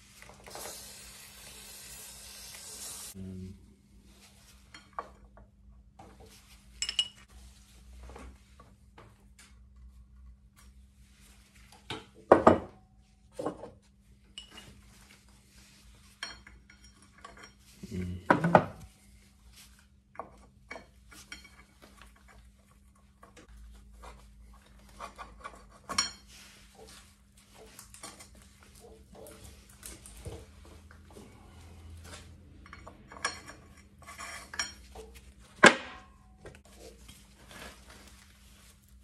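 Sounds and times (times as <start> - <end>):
metal tools clinking and knocking: 6.8 - 7.3, 32.6 - 35.0.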